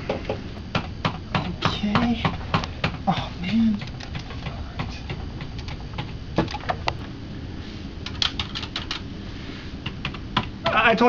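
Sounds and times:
steady low hum: 0.0 - 11.0
keyboard keys clicking: 8.1 - 9.0.

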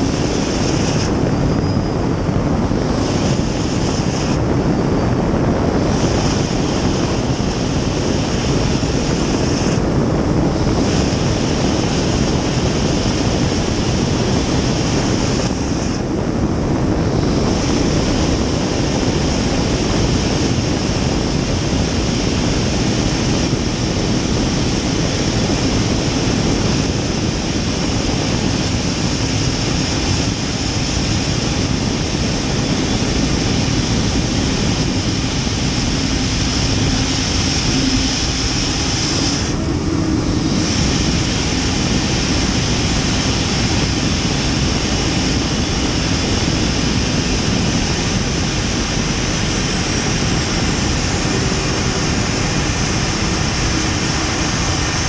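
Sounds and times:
high whine: 0.0 - 55.0
turbine roar: 0.0 - 55.0.

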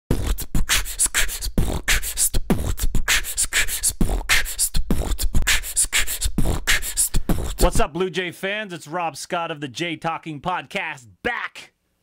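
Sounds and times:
beatbox snare snaps: 0.1 - 7.8
beatbox hissing hi-hat: 0.1 - 7.9
beatbox kick sounds: 0.1 - 7.9.

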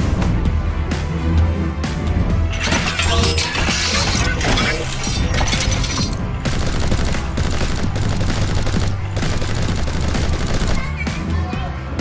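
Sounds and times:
rapid gunfire shots: 6.4 - 11.2.

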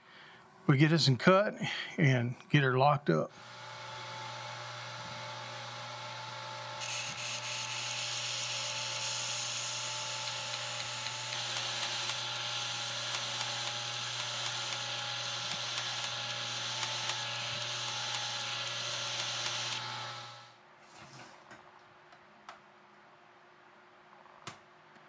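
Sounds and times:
belt grinder motor humming: 3.3 - 20.6.

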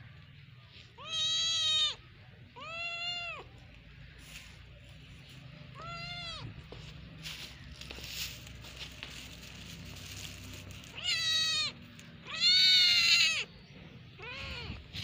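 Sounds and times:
kitten meowing: 1.0 - 2.0, 2.6 - 3.5, 5.8 - 6.5, 10.9 - 13.5, 14.2 - 15.0.

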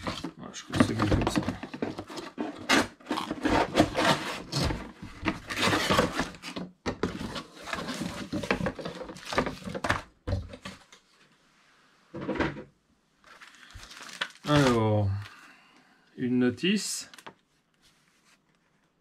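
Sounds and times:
packaging rustling and scraping: 0.0 - 10.9, 13.2 - 15.2.

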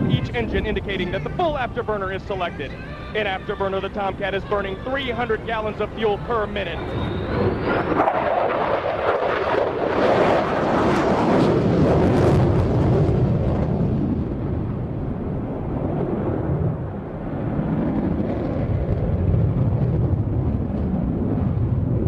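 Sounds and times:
jet engine roar: 0.0 - 22.0.

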